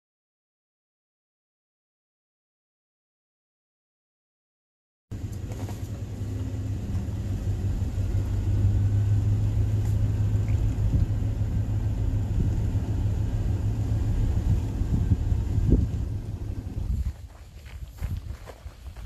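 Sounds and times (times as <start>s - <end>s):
low rumble: 5.1s - 19.0s.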